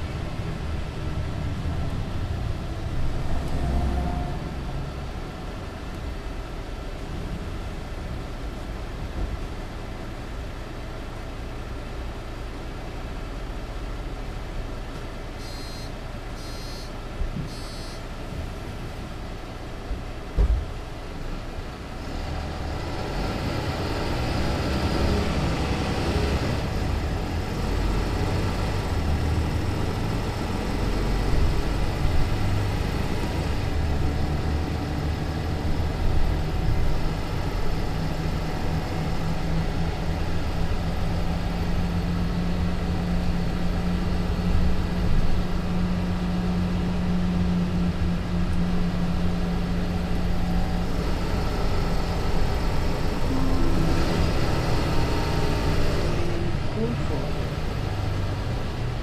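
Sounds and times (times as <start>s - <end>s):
bus engine running: 0.0s - 59.0s
short high electronic beeps: 15.4s - 18.0s.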